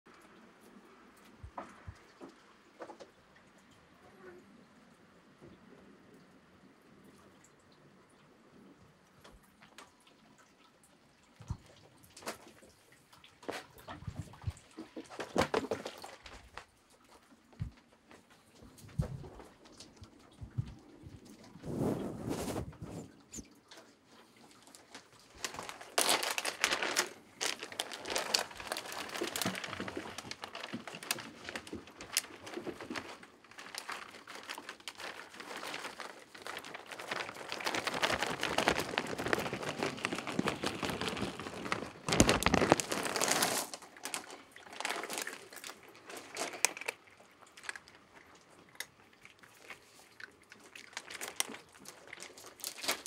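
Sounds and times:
plastic bag crinkling: 13.5s - 16.6s, 24.6s - 48.2s, 49.3s - 53.0s
kibble shaken onto carpet: 35.3s - 44.3s.

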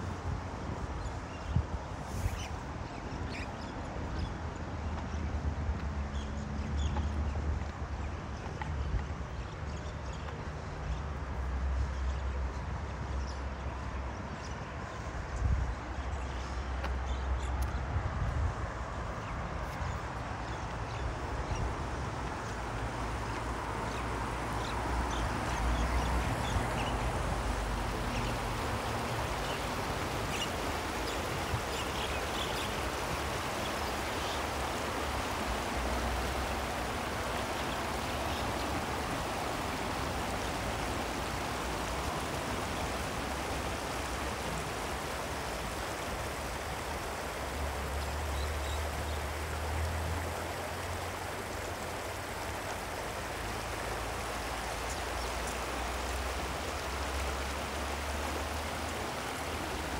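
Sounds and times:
river water rushing: 18.6s - 59.9s.

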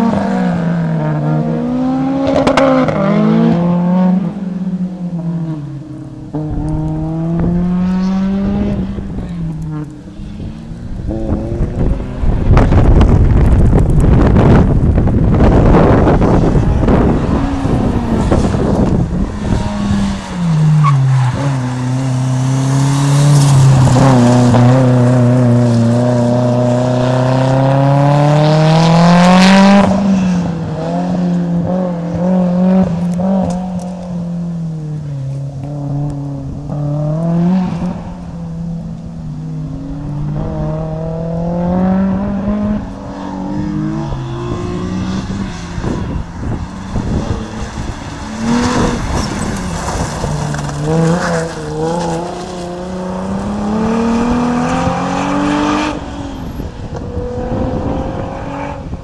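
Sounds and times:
car engine revving: 35.6s - 59.0s.

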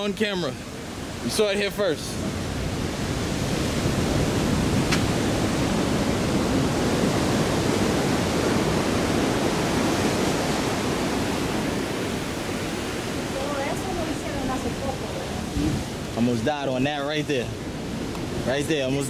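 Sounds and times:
ocean surf rushing against shore: 0.0s - 19.0s.

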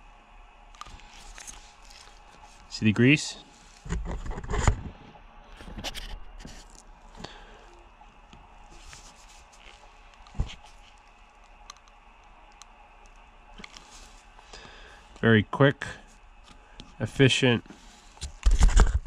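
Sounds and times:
rustling of gloved hands: 0.8s - 4.6s, 5.6s - 15.2s.

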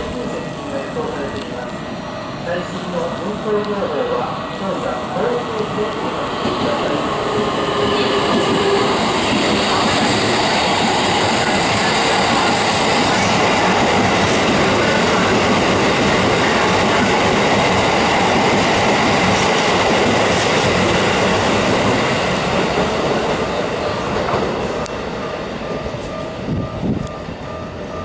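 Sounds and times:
train wheels clattering over rails: 6.4s - 27.0s.

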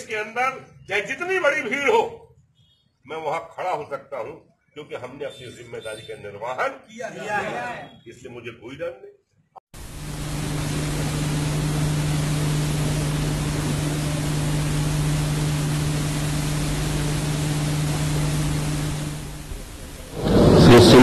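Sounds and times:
low electrical hum: 9.8s - 21.0s
steady hiss: 9.8s - 21.0s.

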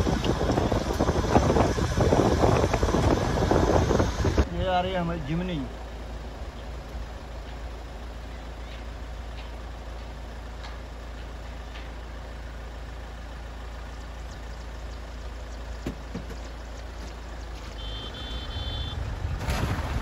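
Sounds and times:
low rumble: 18.1s - 20.0s.

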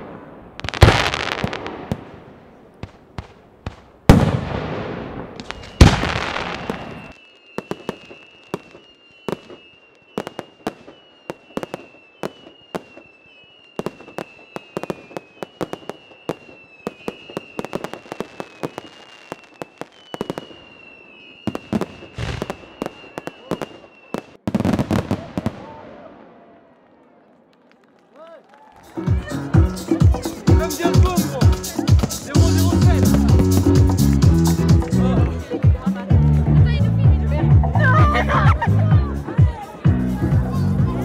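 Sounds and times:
big firework bursts: 0.0s - 27.9s, 28.8s - 35.9s
sharp firework cracks: 0.0s - 28.1s
firework crackling: 0.0s - 36.1s
high wavering whistle: 5.6s - 17.7s, 19.3s - 24.4s.

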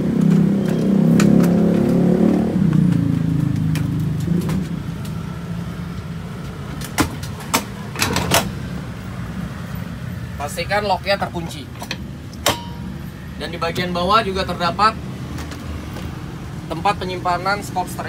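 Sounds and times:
metal clicks and clanks: 11.7s - 12.9s.

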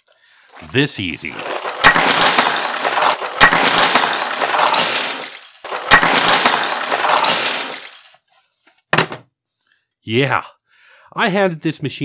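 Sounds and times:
plastic toys clattering onto table: 1.3s - 8.2s.

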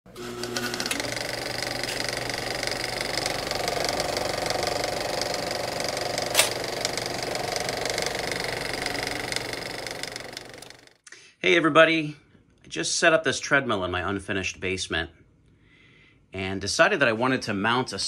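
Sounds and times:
small machine clattering: 0.4s - 10.9s
sharp click: 6.3s - 6.7s.

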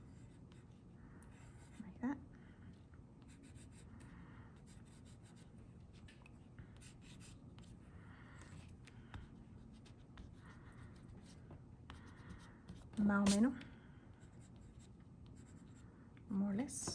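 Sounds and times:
pencil scratching on paper: 0.0s - 2.0s, 3.2s - 4.0s, 4.6s - 6.2s, 6.8s - 7.8s, 8.4s - 13.5s, 14.2s - 15.9s.

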